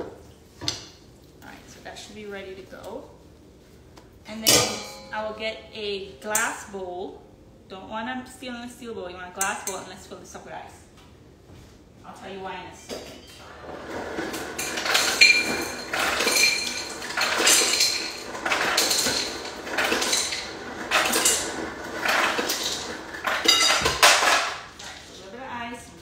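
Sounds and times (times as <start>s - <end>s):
ice cubes clattering into glass bowl: 14.5s - 24.6s.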